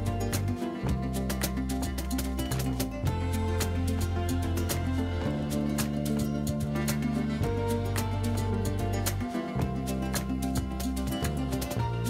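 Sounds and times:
music with steady beat and bass: 0.0 - 12.0.

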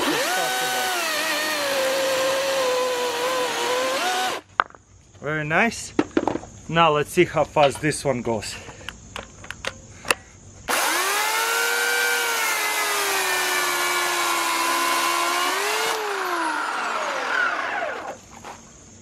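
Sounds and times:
electric chainsaw cutting log: 0.0 - 4.5, 10.7 - 18.2.

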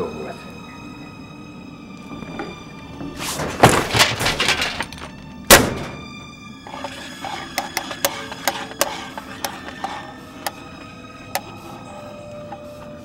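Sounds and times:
droning music score: 0.0 - 13.0
heavy thuds: 2.2 - 7.4
clattering scrape: 2.3 - 5.2, 6.6 - 13.0.

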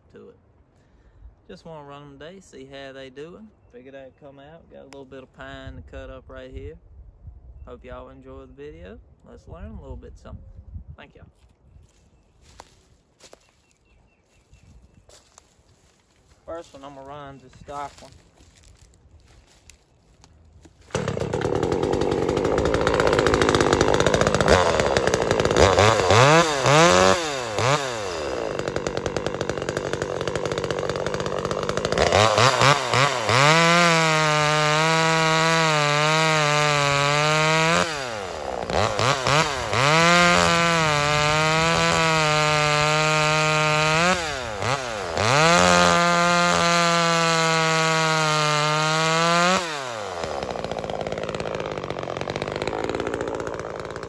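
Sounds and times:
chainsaw revving and cutting wood: 15.1 - 54.0.

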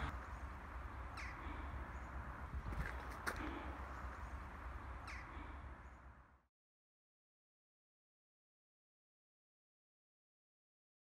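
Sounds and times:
wind rumble on microphone: 0.0 - 0.6, 1.8 - 3.9
distant traffic hiss: 0.0 - 6.4.

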